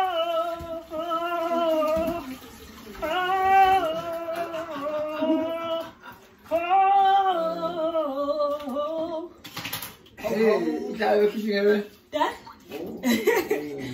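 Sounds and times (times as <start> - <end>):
woman singing long notes: 6.5 - 9.4.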